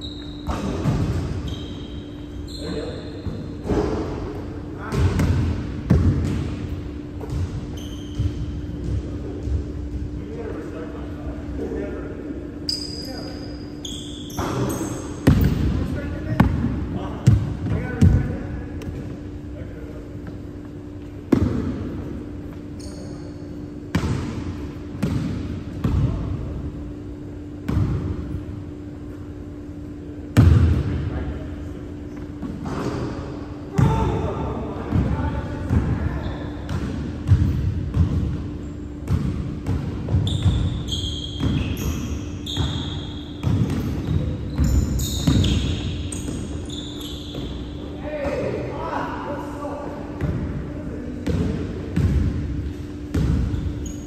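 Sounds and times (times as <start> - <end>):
sneakers squeaking: 0.0 - 49.0, 49.9 - 54.0
steady low hum: 0.0 - 54.0
basketball bouncing on wooden floor: 4.9 - 6.5, 15.2 - 15.7, 36.7 - 38.4, 42.5 - 46.5, 51.2 - 52.4, 53.1 - 53.7.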